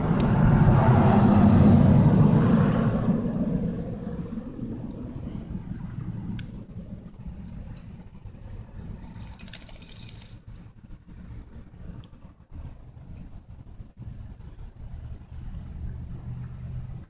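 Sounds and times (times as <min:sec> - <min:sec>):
low steady rumble: 0:00.0 - 0:17.0
dog collar jingling: 0:07.5 - 0:11.7.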